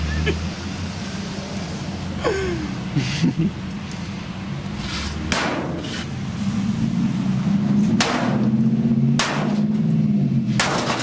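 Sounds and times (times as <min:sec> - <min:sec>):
sledgehammer striking metal: 0:05.3 - 0:06.0, 0:07.9 - 0:09.8, 0:10.5 - 0:11.0.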